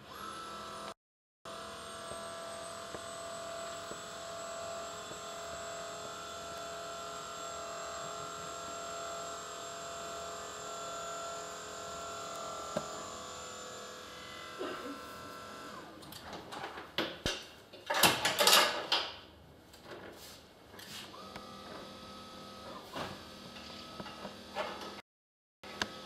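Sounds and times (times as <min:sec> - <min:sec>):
electric motor whine: 0:00.0 - 0:16.0, 0:21.1 - 0:25.0, 0:25.7 - 0:26.0.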